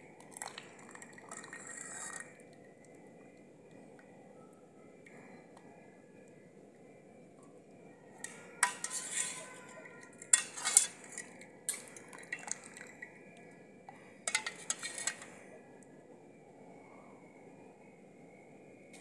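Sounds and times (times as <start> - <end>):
utensils clattering on metal bowls: 8.2 - 13.1, 14.2 - 15.3.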